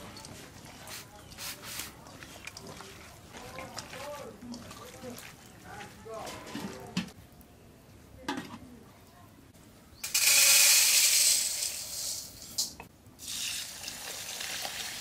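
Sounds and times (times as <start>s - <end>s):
loud hiss: 10.1s - 13.7s.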